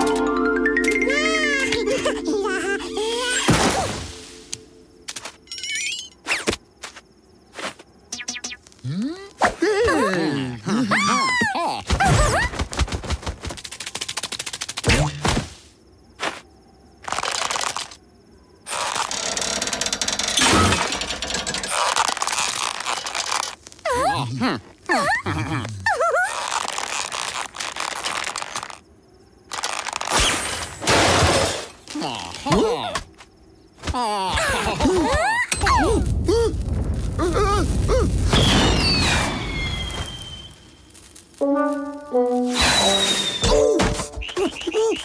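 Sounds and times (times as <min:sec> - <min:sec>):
cartoon firework crackling and fizzing: 0:35.8 - 0:43.4
long falling whistle: 0:38.4 - 0:40.7, 0:42.4 - 0:45.0.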